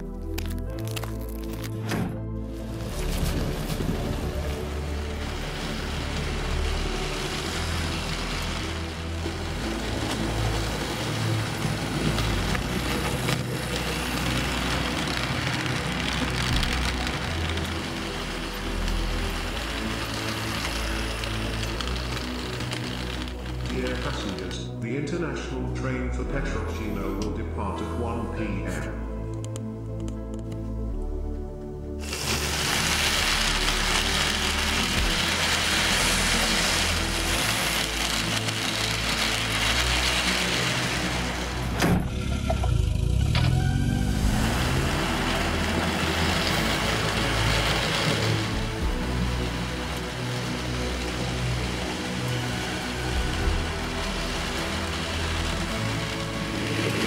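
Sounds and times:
train wheel noise: 0:02.5 - 0:25.2, 0:32.0 - 0:57.0
model train motor hum: 0:03.6 - 0:24.6, 0:32.0 - 0:41.9, 0:42.7 - 0:57.0.

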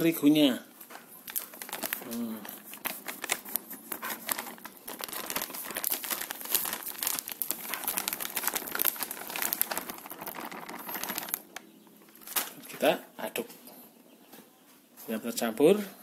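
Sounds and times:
plastic bag crinkling: 0:01.1 - 0:12.7.

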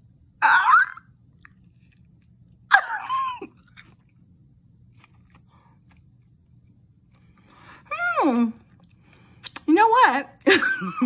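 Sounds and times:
person chewing crunchy food: 0:01.2 - 0:07.9.

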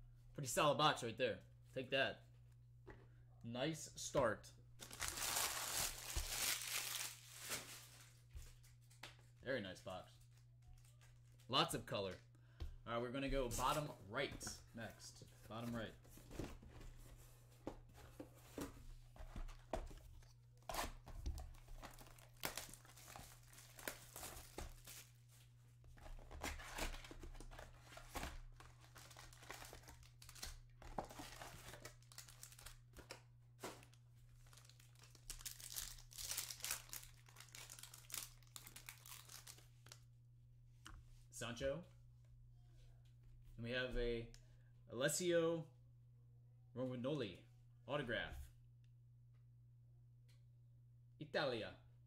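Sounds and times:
foil packs crinkling and tearing: 0:04.8 - 0:08.1, 0:21.6 - 0:25.1, 0:27.9 - 0:32.9, 0:34.4 - 0:40.0.

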